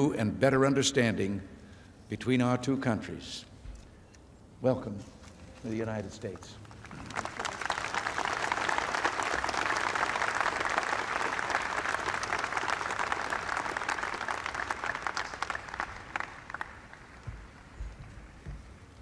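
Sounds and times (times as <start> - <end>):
crowd applauding: 6.6 - 18.4.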